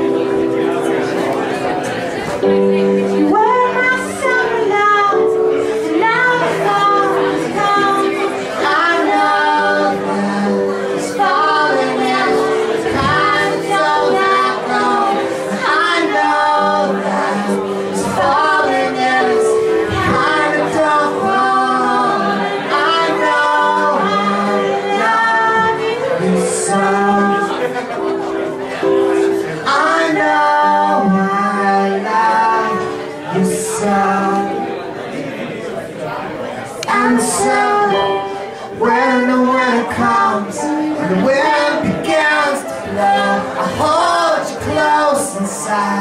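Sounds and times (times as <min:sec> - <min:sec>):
person singing: 0:02.4 - 0:35.0, 0:36.8 - 0:46.0.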